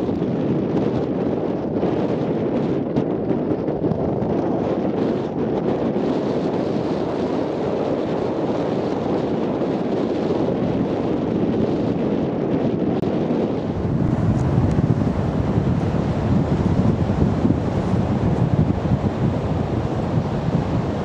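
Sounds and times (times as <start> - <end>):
wind buffeting microphone: 0.0 - 21.0
distant surf: 13.4 - 21.0.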